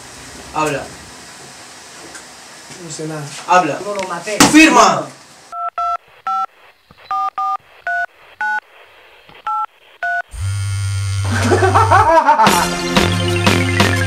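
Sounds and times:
phone keypad touch tones: 5.5 - 8.6, 9.4 - 10.3.

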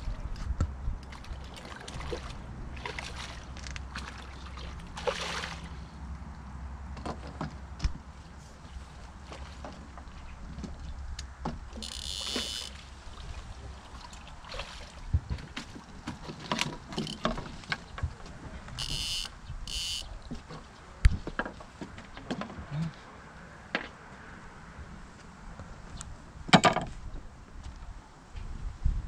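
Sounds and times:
water splashing: 1.0 - 5.9, 11.9 - 17.7.

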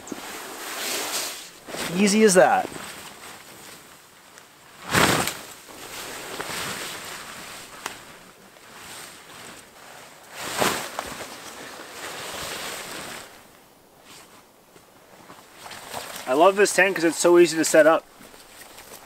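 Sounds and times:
fabric rustling: 0.0 - 16.4
fabric whooshing: 4.7 - 13.4.

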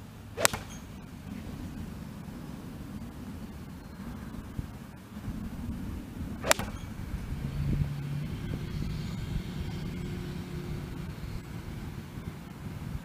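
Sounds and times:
low engine drone: 0.0 - 13.0
golf iron striking ball: 0.3 - 2.3, 6.4 - 8.8.

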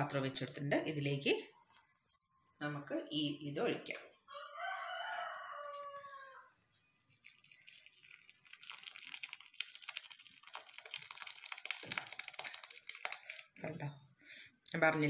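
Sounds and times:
rooster crowing: 4.3 - 6.6
liquid splashing and trickling: 6.7 - 13.7.

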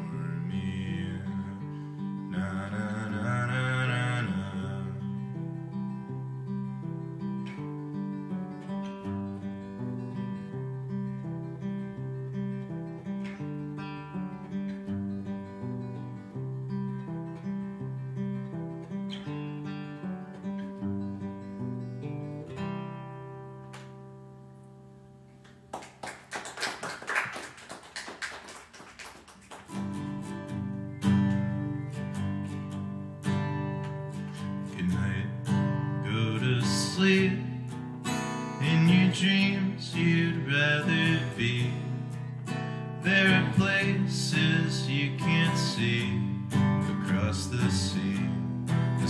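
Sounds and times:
solo acoustic guitar: 0.0 - 25.7, 29.6 - 49.0
audience applause: 25.7 - 30.2.

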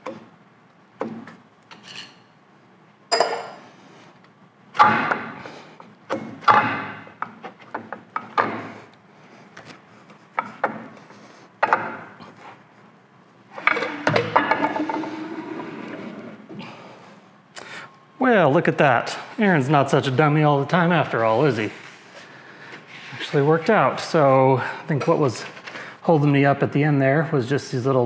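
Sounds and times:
metal clunks and knocks: 6.1 - 8.7, 11.6 - 12.1, 13.6 - 15.2.

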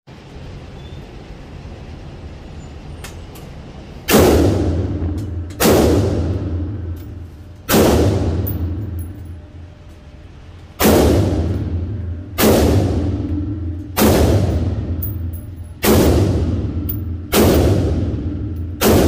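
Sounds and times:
rifle gunshots with echo: 4.1 - 6.9, 7.7 - 8.8, 10.8 - 19.0.

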